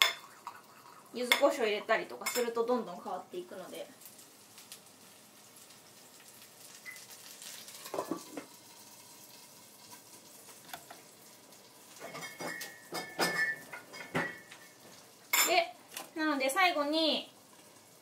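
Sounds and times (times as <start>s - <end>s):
food sizzling in a pan: 0.0s - 18.0s.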